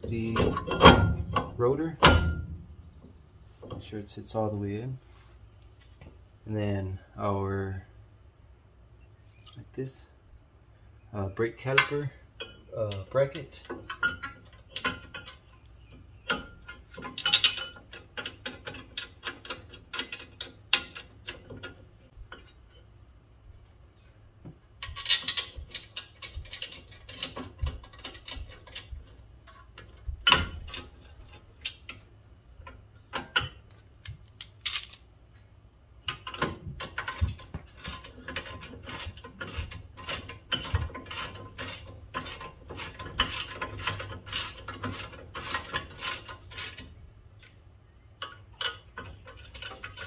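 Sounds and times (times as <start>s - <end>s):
metal clinks and knocks: 0.0s - 3.9s, 11.7s - 22.9s, 24.8s - 35.1s, 36.0s - 47.6s, 48.2s - 50.0s.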